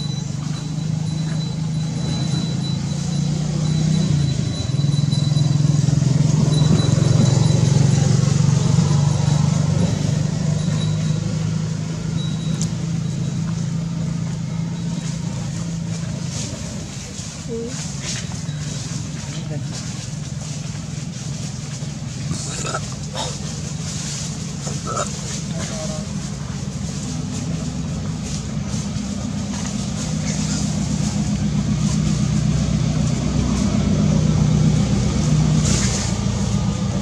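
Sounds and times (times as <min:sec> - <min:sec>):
thin high tone: 0:00.0 - 0:16.6
low engine hum: 0:00.0 - 0:37.0.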